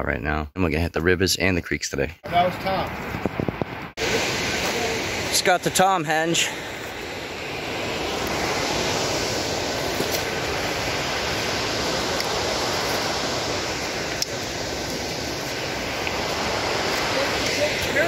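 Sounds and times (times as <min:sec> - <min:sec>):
river rushing over rapids: 0:04.0 - 0:18.0.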